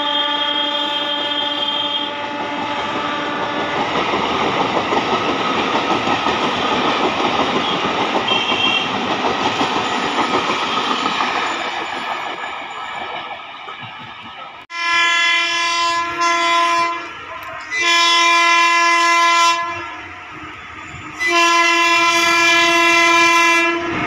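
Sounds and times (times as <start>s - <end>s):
train horn: 0.0s - 4.0s, 7.6s - 9.0s, 14.7s - 24.0s
train wheels clattering over rail joints: 2.9s - 14.6s.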